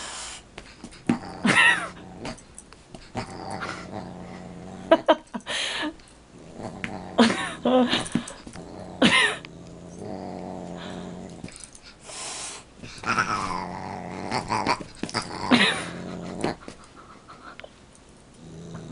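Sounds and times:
low growling: 0:01.1 - 0:02.4, 0:03.1 - 0:05.1, 0:06.3 - 0:11.6, 0:13.0 - 0:16.7, 0:18.4 - 0:18.9.

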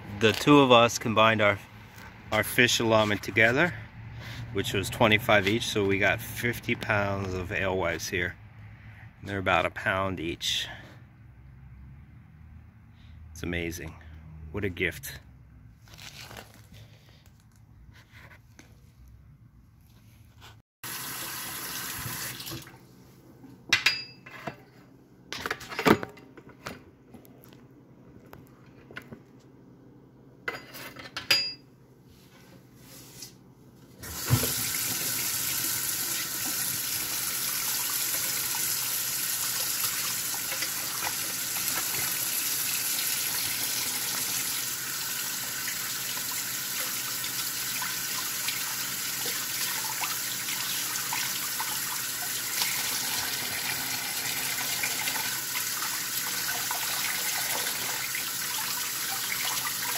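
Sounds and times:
tap water running into sink: 0:20.9 - 0:22.8, 0:34.0 - 0:59.9.

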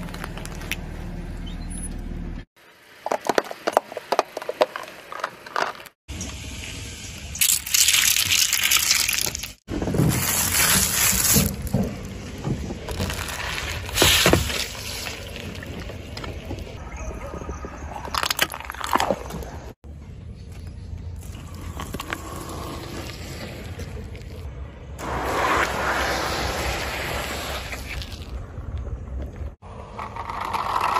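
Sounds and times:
plastic cups crackling under tyre: 0:07.4 - 0:16.8, 0:17.8 - 0:19.8, 0:21.2 - 0:24.5, 0:29.6 - 0:30.9.

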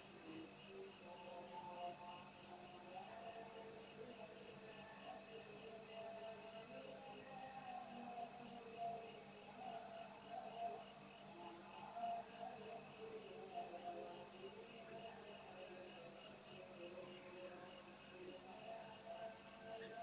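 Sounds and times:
loud cricket chirps: 0:05.2 - 0:07.5, 0:08.2 - 0:20.0
crickets trilling: 0:12.0 - 0:16.6.

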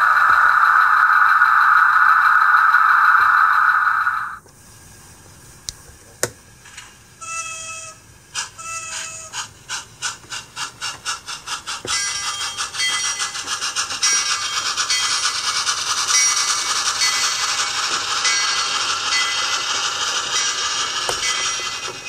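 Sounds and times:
steam locomotive chuffing: 0:08.2 - 0:22.0.

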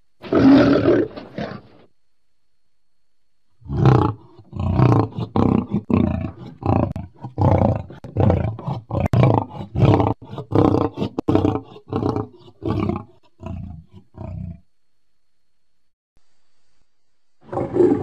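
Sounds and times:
lion roaring: 0:00.2 - 0:01.8, 0:03.6 - 0:14.6, 0:17.4 - 0:18.0.

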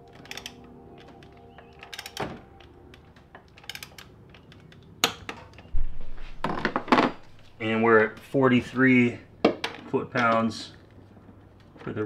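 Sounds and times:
dull handling noise: 0:01.0 - 0:08.4.

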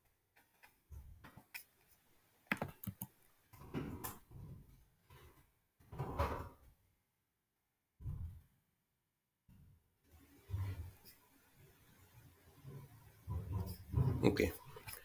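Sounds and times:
computer keyboard keystrokes: 0:02.5 - 0:03.1
mouse clicks: 0:02.5 - 0:03.1.

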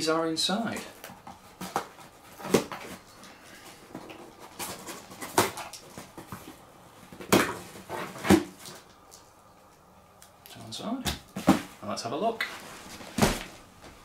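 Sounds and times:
cardboard flaps opening: 0:12.8 - 0:13.6.

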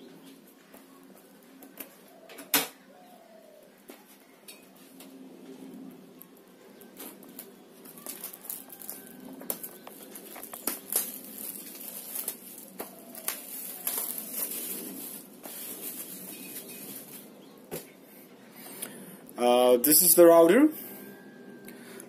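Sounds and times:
plastic wrap crinkling: 0:06.9 - 0:17.5.

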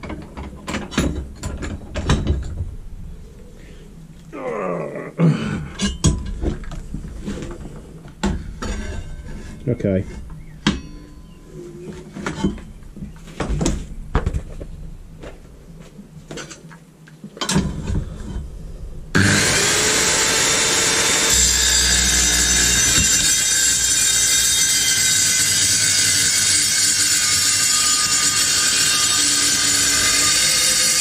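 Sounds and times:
metal knocks and clatter: 0:00.0 - 0:02.7
circular saw cutting metal: 0:19.2 - 0:31.0.

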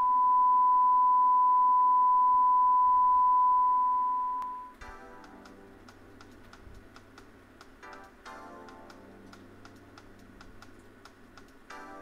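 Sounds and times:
single-pitch test tone: 0:00.0 - 0:04.8
quiet music with light ticks: 0:04.7 - 0:12.0.

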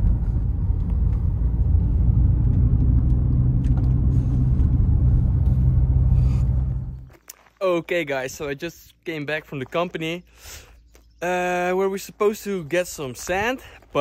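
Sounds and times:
car engine and road noise: 0:00.0 - 0:07.1.

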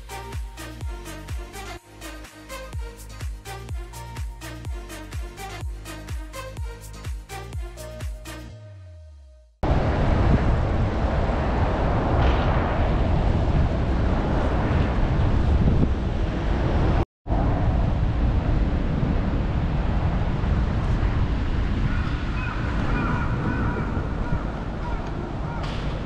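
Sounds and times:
wind rumbling on microphone: 0:09.6 - 0:26.0.

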